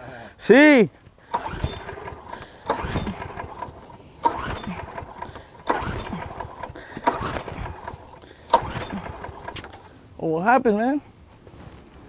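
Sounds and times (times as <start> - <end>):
lawn mower pull-start: 1.2 - 10.0.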